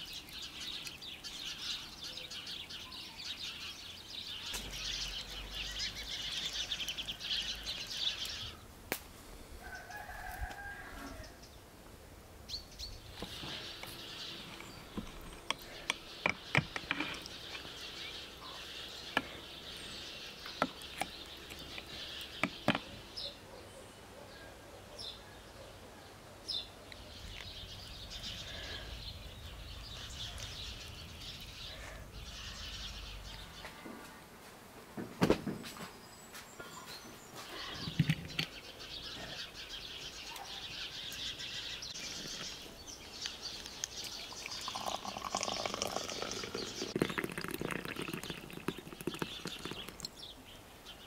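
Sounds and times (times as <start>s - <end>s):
rooster crowing: 9.6s - 11.4s
sharp clicks and knocks: 22.4s - 22.9s.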